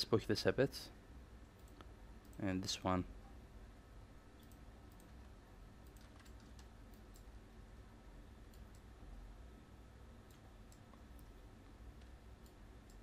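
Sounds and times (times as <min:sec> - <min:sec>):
computer mouse and keyboard clicks: 0:04.4 - 0:07.3.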